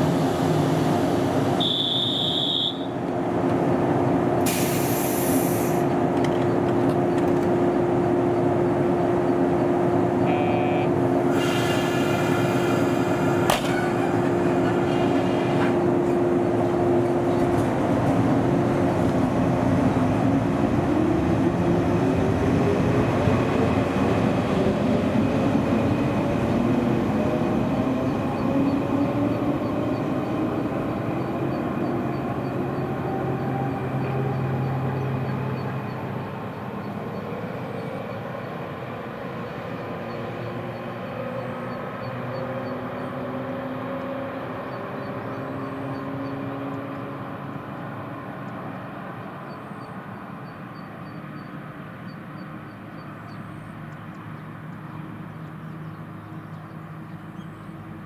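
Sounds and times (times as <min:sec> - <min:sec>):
brief hisses: 0:04.5 - 0:05.8, 0:11.3 - 0:13.0
electric train humming: 0:05.8 - 0:39.8
train doors closing clunk: 0:11.4 - 0:15.8.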